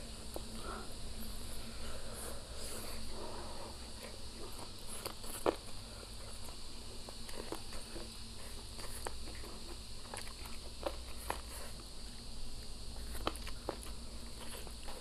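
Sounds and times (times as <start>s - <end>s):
wet chewing mouth clicks: 4.0s - 11.9s.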